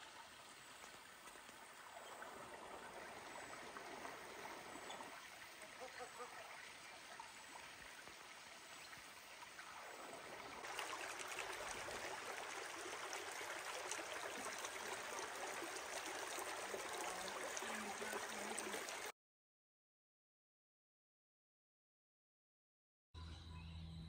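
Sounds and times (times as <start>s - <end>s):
creek water flowing: 0.0s - 19.1s.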